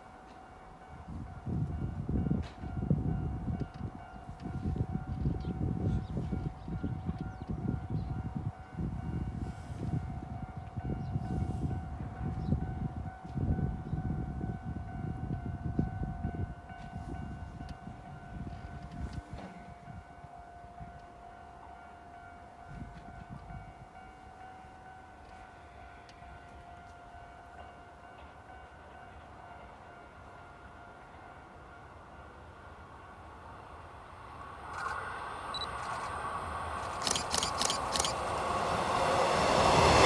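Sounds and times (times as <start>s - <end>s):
wind buffeting microphone: 0.9s - 21.0s, 34.6s - 40.0s
high-pitched warning tone: 34.7s - 38.4s.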